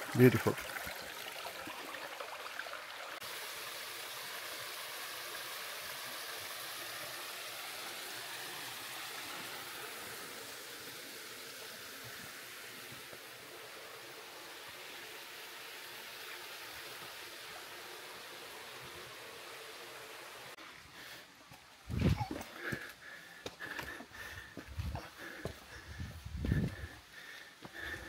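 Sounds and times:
stream water running: 0.0 - 28.0.

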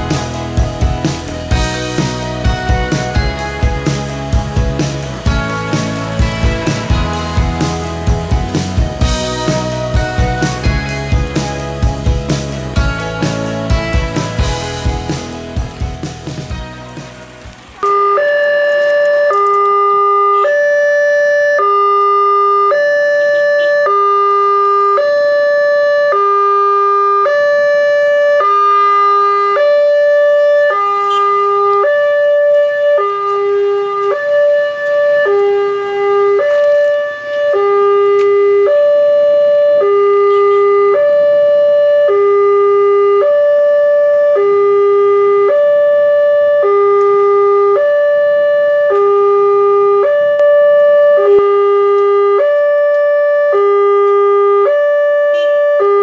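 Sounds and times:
level crossing two-tone alarm: 17.8 - 56.0.

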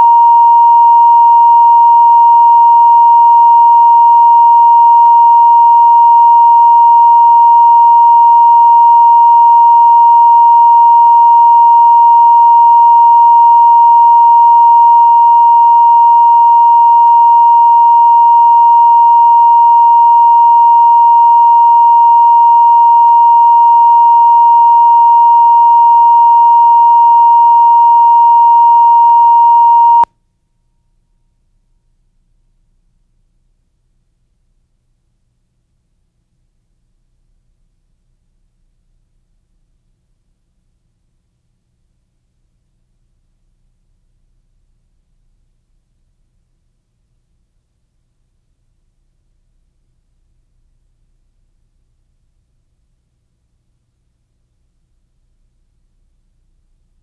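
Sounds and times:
steady pure test tone: 0.0 - 30.1.

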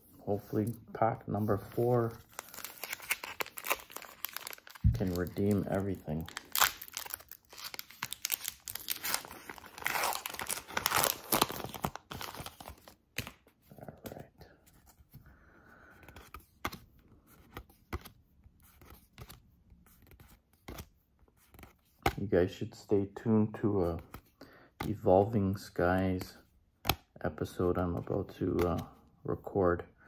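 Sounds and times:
foil wrapper tearing and crinkling: 2.3 - 12.8.

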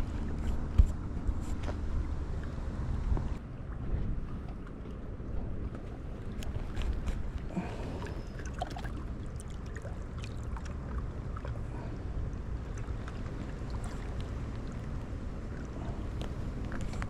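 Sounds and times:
wind rumbling on microphone: 0.0 - 17.0
water lapping against rocks: 3.7 - 17.0.

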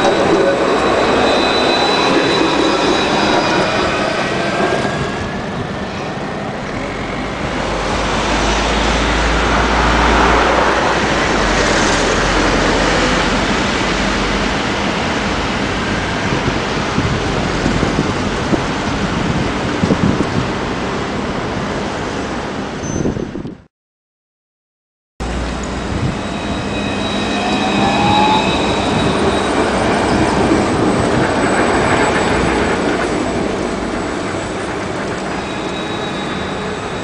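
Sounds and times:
street traffic: 0.0 - 22.8, 25.2 - 37.0
tram electric drive whining: 0.0 - 22.8, 25.2 - 37.0
wind rumble on microphone: 3.2 - 23.7, 25.3 - 26.4.

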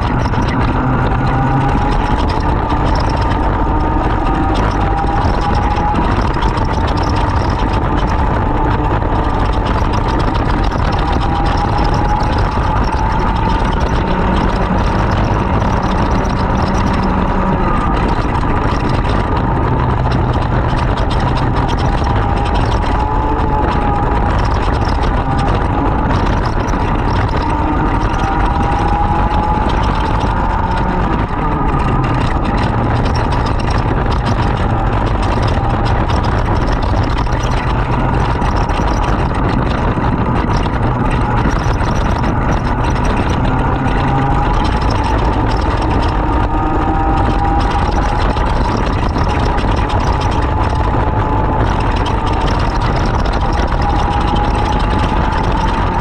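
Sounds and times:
kart engine running hard: 0.0 - 56.0.

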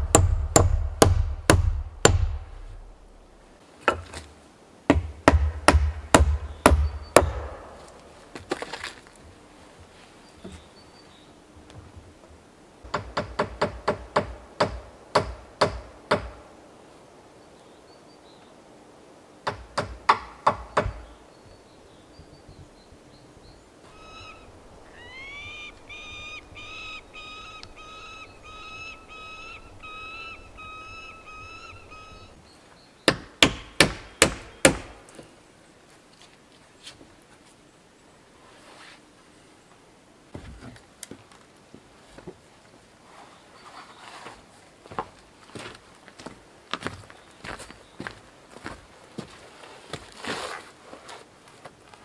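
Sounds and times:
hand tool striking timber: 0.0 - 2.6, 4.9 - 7.9, 12.9 - 16.4, 33.1 - 35.0
bird calling: 20.8 - 33.1.

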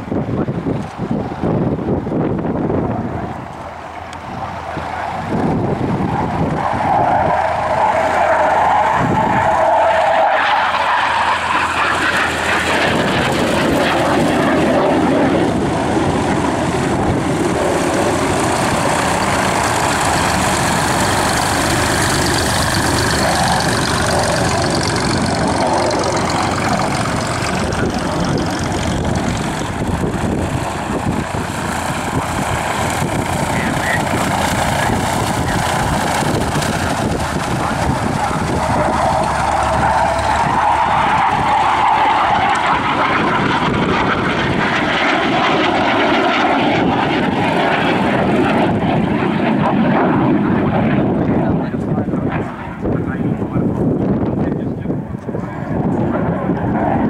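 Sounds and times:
jet engine roar: 0.0 - 57.0
jet engine whine: 0.0 - 57.0.

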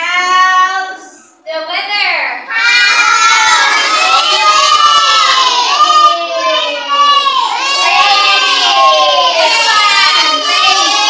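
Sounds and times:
children chanting together: 2.5 - 11.0.

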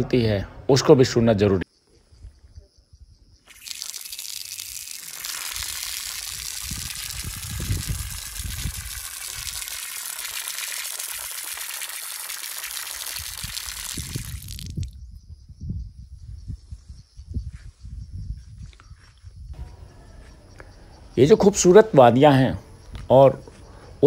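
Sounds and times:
flowing water hiss: 3.4 - 15.0.

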